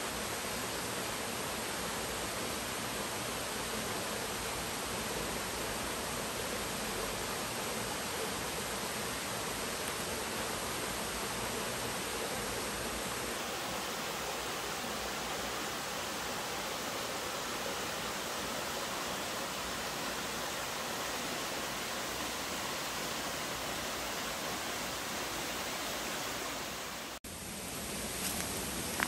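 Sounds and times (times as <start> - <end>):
waterfall rushing: 8.4 - 27.2.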